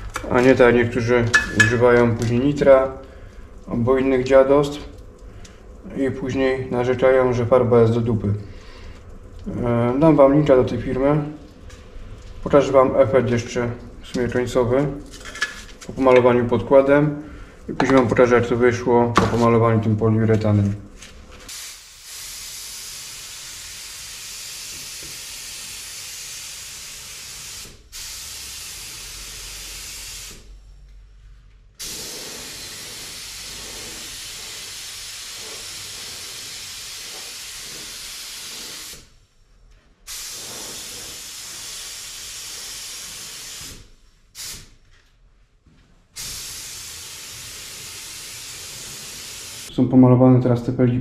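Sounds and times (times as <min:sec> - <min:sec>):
paint spray gun hissing: 0:21.5 - 0:30.5, 0:31.8 - 0:39.1, 0:40.1 - 0:44.7, 0:46.2 - 0:49.7.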